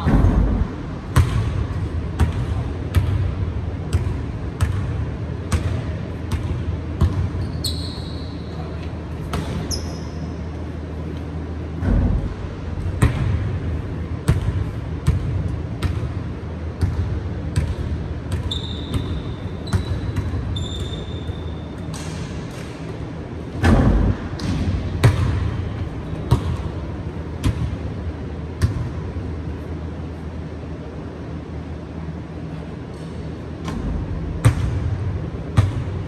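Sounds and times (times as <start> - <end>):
low hum in hall: 0.0 - 36.0
sneaker squeaks: 7.0 - 10.6, 18.3 - 22.5
basketball bouncing on wooden floor: 23.6 - 25.5.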